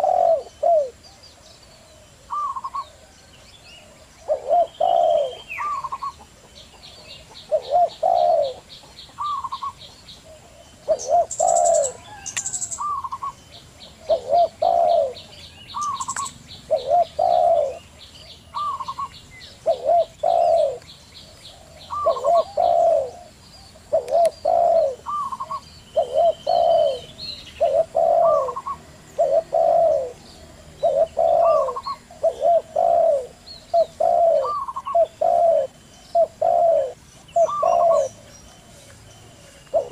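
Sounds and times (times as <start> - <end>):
doves cooing: 0.0 - 39.9
small birds chirping: 0.0 - 39.9
high ticking bird trill: 10.9 - 17.8, 23.9 - 39.9.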